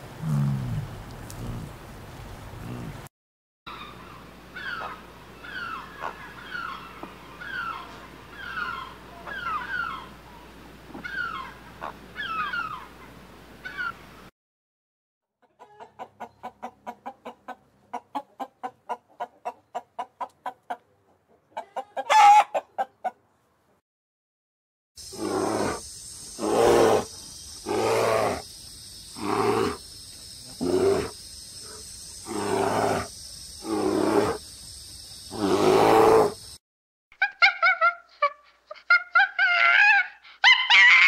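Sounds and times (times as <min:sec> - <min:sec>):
chicken squawk: 0:03.7 - 0:10.2, 0:11.0 - 0:13.0, 0:13.6 - 0:14.0, 0:15.4 - 0:20.8, 0:21.5 - 0:23.2, 0:37.2 - 0:41.0
chickens clucking: 0:03.8 - 0:10.1, 0:15.4 - 0:23.4
chicken falling calls: 0:21.6 - 0:22.7.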